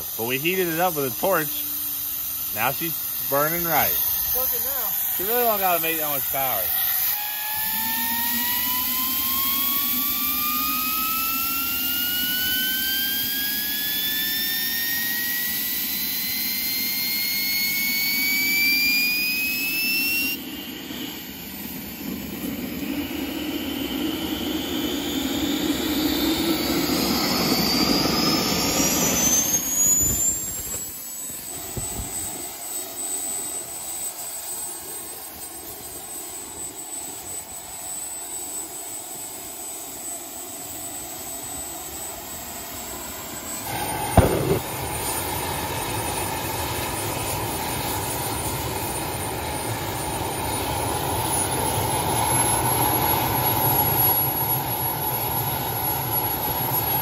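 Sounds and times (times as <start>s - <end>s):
jet turbine whine: 0.0s - 57.0s
rushing exhaust noise: 43.6s - 44.9s
sharp loud pop: 43.7s - 44.8s.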